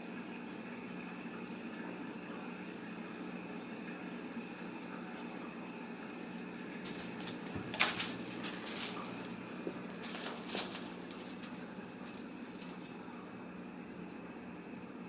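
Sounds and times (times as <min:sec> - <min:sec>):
faint steady hum: 0:00.0 - 0:15.0
toy ball jingling and rattling: 0:06.9 - 0:12.8.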